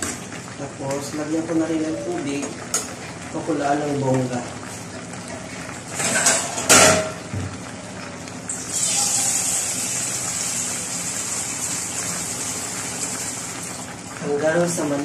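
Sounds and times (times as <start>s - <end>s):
running water rushing: 3.3s - 15.0s.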